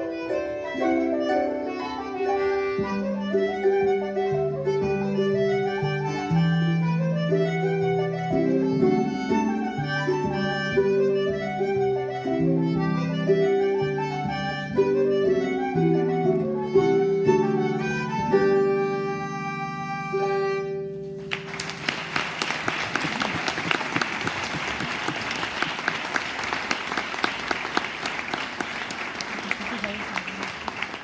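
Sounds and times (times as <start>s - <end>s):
harp flute and concertina trio: 0.0s - 21.1s
audience applause: 21.2s - 31.0s.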